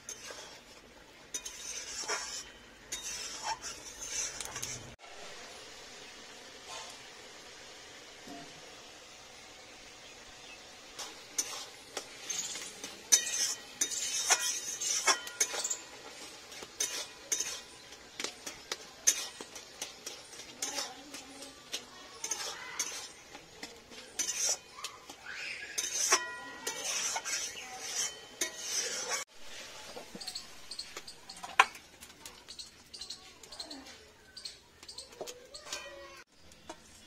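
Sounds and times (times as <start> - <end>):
metal spatula scraping a pan: 0.0 - 5.0, 10.9 - 31.8.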